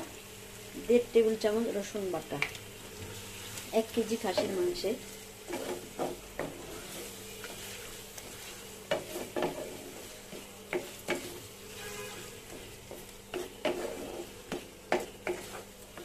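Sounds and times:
food sizzling in hot oil: 0:00.0 - 0:16.0
spatula scraping and knocking pan: 0:04.0 - 0:16.0.

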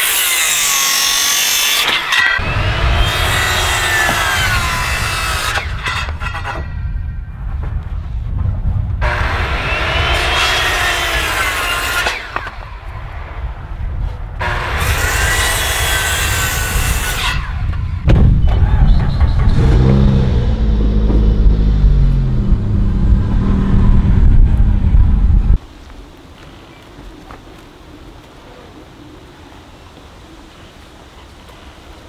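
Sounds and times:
circular saw cutting wood: 0:00.0 - 0:06.8, 0:09.0 - 0:12.8, 0:14.4 - 0:17.9
car engine rumbling past: 0:19.0 - 0:25.6.

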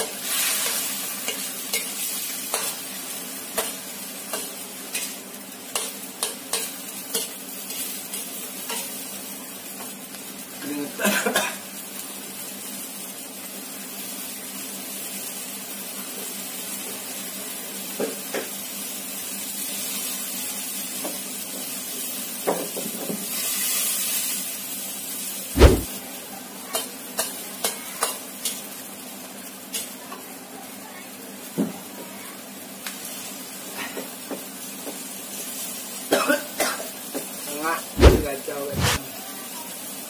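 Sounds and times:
vegetables sizzling in a wok: 0:00.0 - 0:40.0
heavy thump: 0:25.6 - 0:25.9, 0:38.0 - 0:39.0.

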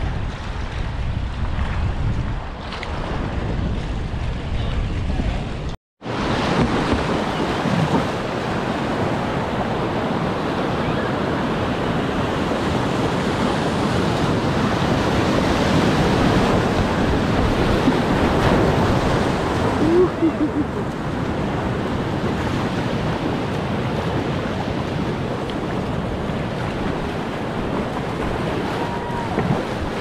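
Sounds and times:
whitewater rushing and splashing: 0:06.1 - 0:30.0.

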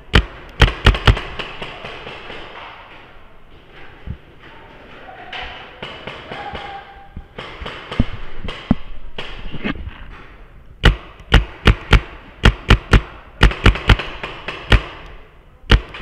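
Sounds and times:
paintball marker shots: 0:00.1 - 0:02.6, 0:10.8 - 0:16.0.

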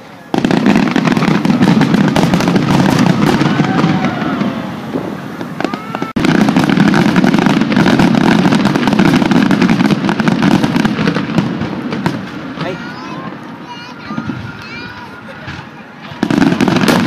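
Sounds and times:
fireworks bursting and crackling: 0:00.0 - 0:17.0.

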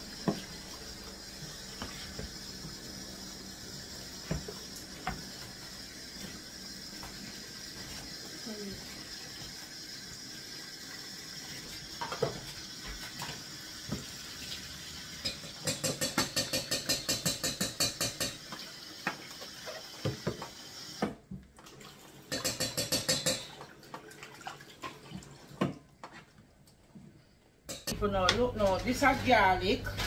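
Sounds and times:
rhythmic rubbing and sloshing: 0:00.0 - 0:09.0
tap running into sink: 0:04.2 - 0:05.6.

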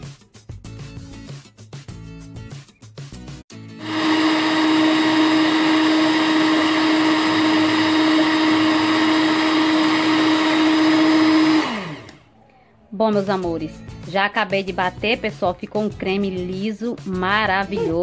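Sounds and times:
stand mixer whipping: 0:03.8 - 0:12.2
mixer motor winding down: 0:03.8 - 0:12.6.

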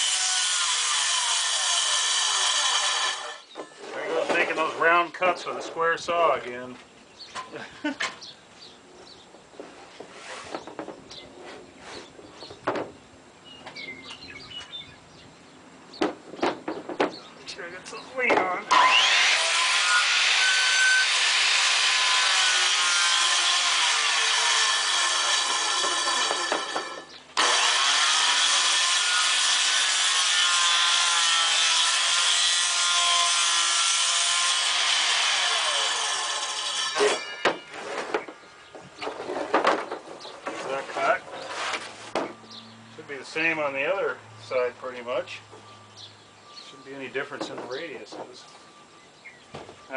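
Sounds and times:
circular saw cutting plywood: 0:00.0 - 0:03.5, 0:18.7 - 0:38.3
small bird chirping: 0:13.4 - 0:16.0, 0:42.4 - 0:43.0.

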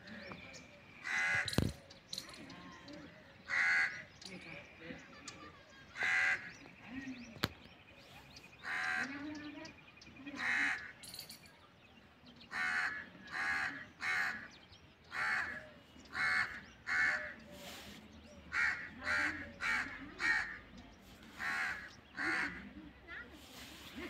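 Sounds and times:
crow cawing: 0:01.0 - 0:01.6, 0:03.5 - 0:04.0, 0:12.5 - 0:14.5, 0:15.1 - 0:17.4, 0:18.5 - 0:20.6, 0:21.4 - 0:22.6.

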